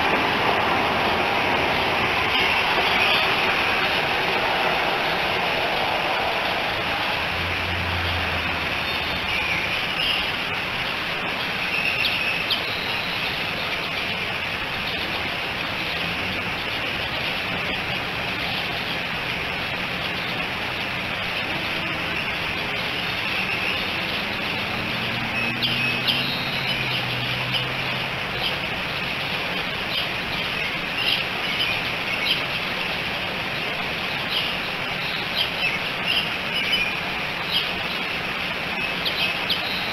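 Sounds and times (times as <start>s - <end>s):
vehicle passing: 0.0s - 9.4s, 23.5s - 28.3s
steady hiss: 0.0s - 39.9s
small birds chirping: 34.2s - 38.1s.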